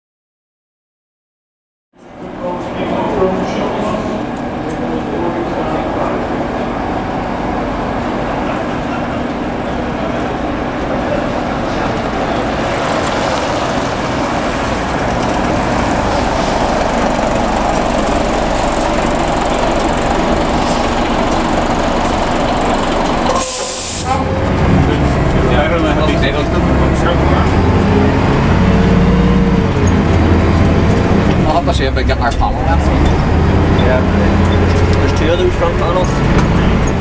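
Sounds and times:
bus diesel engine running: 2.0s - 37.0s
compressed air hiss: 23.4s - 24.1s.

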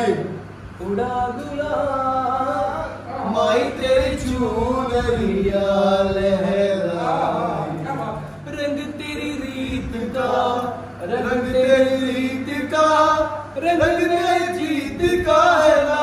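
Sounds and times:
man singing unaccompanied: 0.0s - 16.0s.

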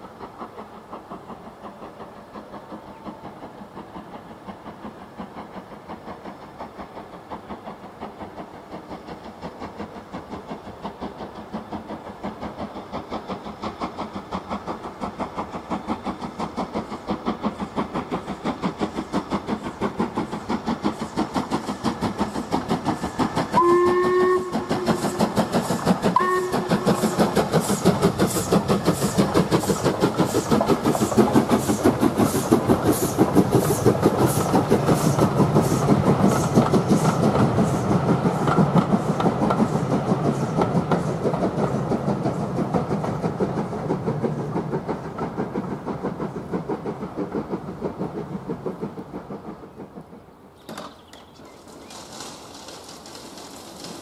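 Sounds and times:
steam locomotive exhaust beats: 0.0s - 54.0s
steam whistle: 23.5s - 25.5s, 26.1s - 27.2s.

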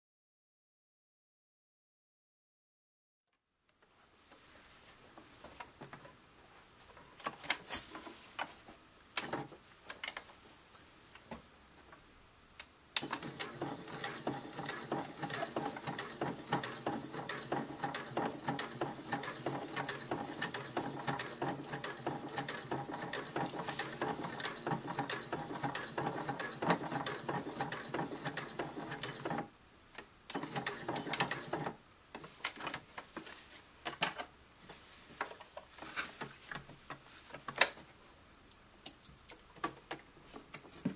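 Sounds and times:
sewing machine stitching: 13.0s - 29.5s, 30.3s - 31.8s.

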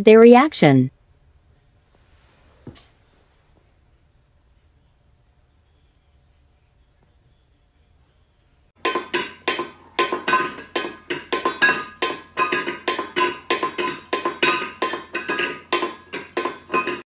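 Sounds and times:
metal bowl clinking on tiled floor: 8.8s - 17.0s.

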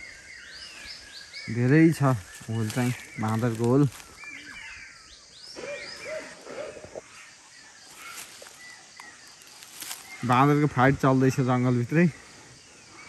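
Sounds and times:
distant monkeys screeching: 3.9s - 9.2s.

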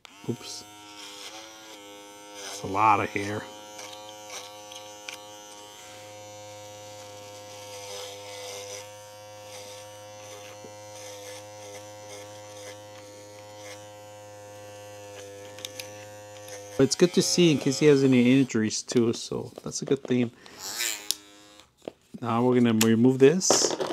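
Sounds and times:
pet trimmer buzzing: 0.0s - 19.1s, 20.4s - 21.8s.

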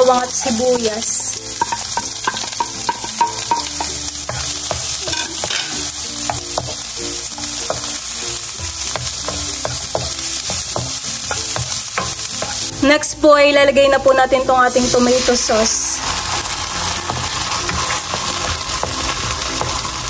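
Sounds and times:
onion and garlic sizzling in oil: 0.0s - 20.0s
spatula scraping and tapping a wok: 1.5s - 12.8s, 16.0s - 20.0s.

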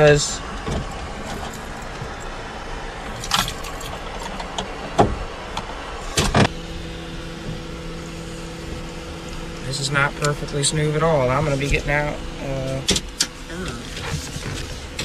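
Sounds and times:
steady hum: 0.0s - 15.0s
keys jingling: 1.1s - 2.4s, 3.1s - 4.3s.

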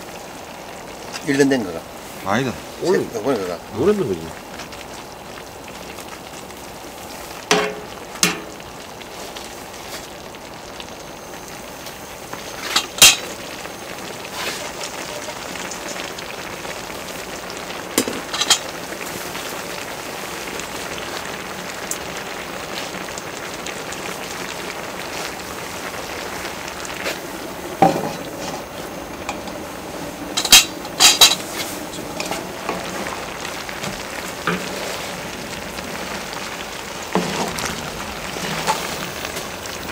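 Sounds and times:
stew sizzling and bubbling: 0.0s - 39.9s
metal tongs clacking: 7.5s - 8.6s, 12.8s - 13.3s, 18.3s - 18.7s, 30.4s - 31.5s.

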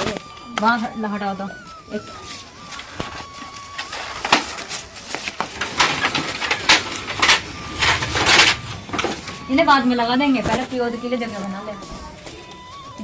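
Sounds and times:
bamboo poles knocking and scraping: 2.7s - 9.4s.

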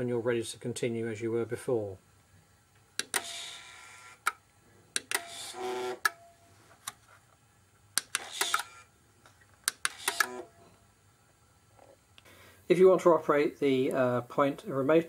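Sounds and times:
sharp switch and relay clicks: 3.0s - 3.3s, 5.0s - 5.4s, 8.0s - 8.7s, 9.6s - 10.4s
small actuator motor running: 3.2s - 4.2s, 5.2s - 6.1s, 8.2s - 8.9s, 9.8s - 10.5s.

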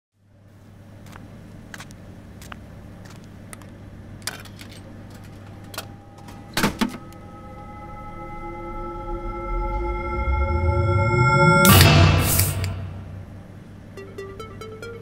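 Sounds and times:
vending machine humming: 3.8s - 8.8s, 12.8s - 15.0s
soft music: 5.8s - 13.3s, 14.0s - 15.0s.

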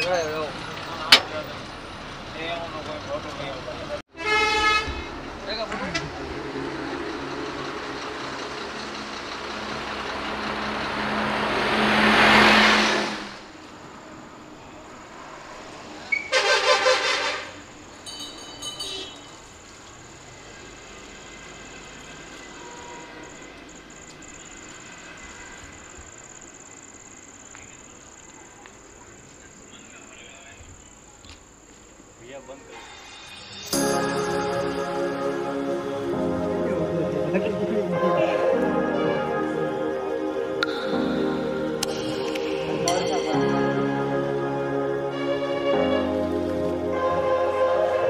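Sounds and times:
heavy vehicle engine humming: 0.0s - 32.3s
oncoming truck road noise: 0.0s - 48.0s
night insects trilling: 17.6s - 34.0s.

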